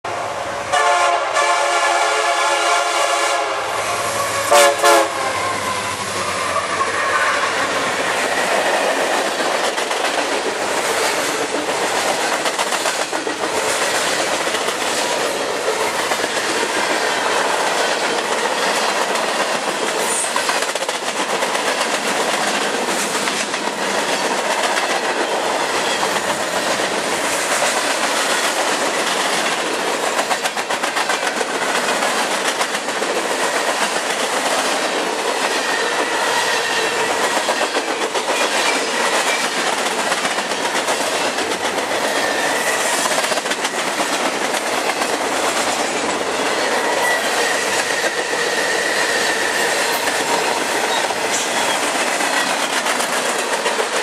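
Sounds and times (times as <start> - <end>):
freight train horn: 0.1 - 7.7.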